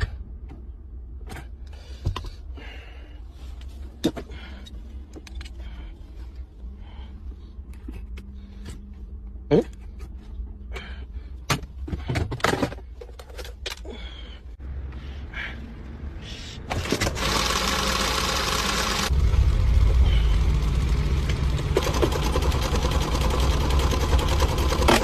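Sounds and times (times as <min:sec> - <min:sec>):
car engine running: 0:16.7 - 0:25.0.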